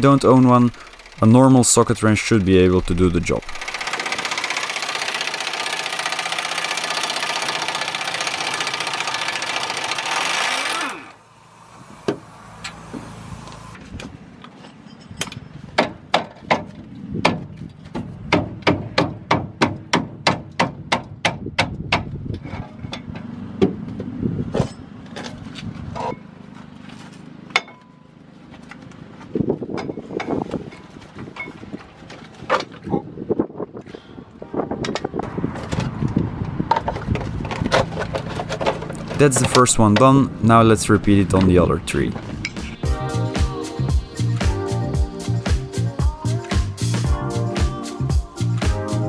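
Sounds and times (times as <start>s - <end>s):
impact wrench hammering: 18.0s - 22.1s.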